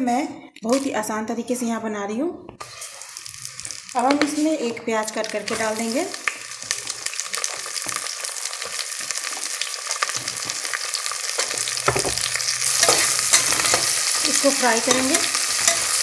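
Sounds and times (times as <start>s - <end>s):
metal spatula scraping a pot: 2.6s - 3.7s, 11.4s - 16.0s
onion sizzling in hot fat: 2.6s - 16.0s.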